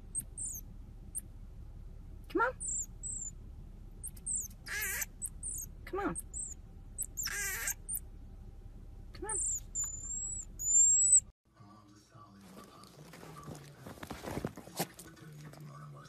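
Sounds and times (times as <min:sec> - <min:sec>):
marmoset chirps and whistles: 0:00.0 - 0:00.6, 0:02.6 - 0:03.4, 0:04.0 - 0:08.0, 0:09.4 - 0:11.3
marmoset harsh noisy calls: 0:00.0 - 0:00.6, 0:02.6 - 0:03.3, 0:04.0 - 0:08.0, 0:09.3 - 0:11.3
marmoset long whistled calls: 0:00.1 - 0:00.6, 0:02.6 - 0:03.3, 0:04.0 - 0:08.0, 0:09.4 - 0:11.3.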